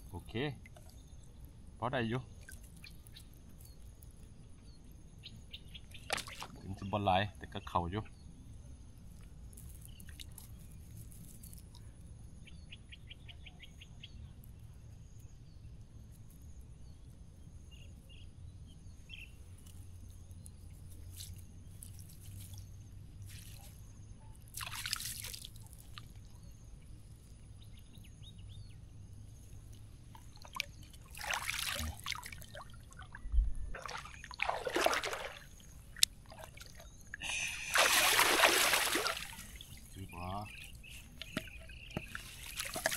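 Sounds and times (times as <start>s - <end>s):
faint bird chirps: 0.0s - 8.5s, 9.6s - 15.7s, 17.6s - 24.5s, 39.1s - 42.9s
water dripping and splashing: 6.0s - 6.6s, 9.6s - 11.8s, 24.5s - 26.2s, 30.0s - 40.0s, 41.2s - 42.9s.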